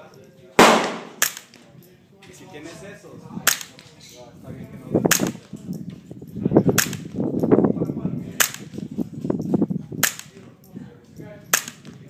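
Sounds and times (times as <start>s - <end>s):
suppressed gunshots: 0.6s - 1.5s.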